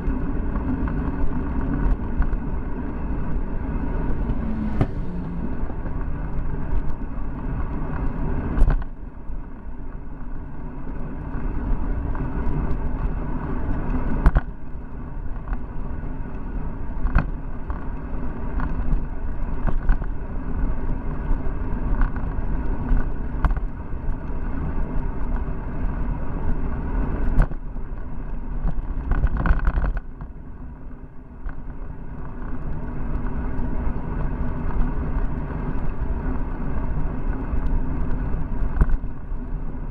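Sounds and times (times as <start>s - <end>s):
wind rushing over microphone: 0.0s - 9.8s
tyre noise on paved road: 0.0s - 39.9s.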